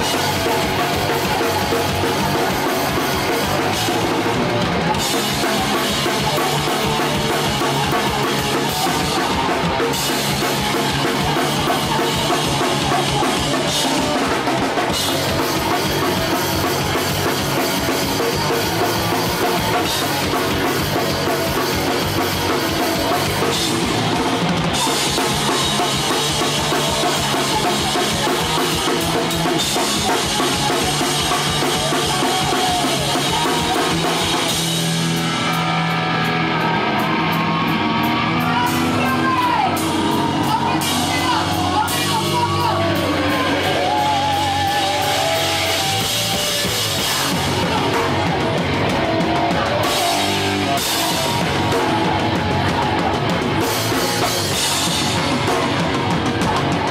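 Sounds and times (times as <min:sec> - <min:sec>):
bass guitar: 0:00.0 - 0:56.9
distorted guitar: 0:00.0 - 0:56.9
drums: 0:00.0 - 0:56.9
shouted vocals: 0:00.0 - 0:56.9.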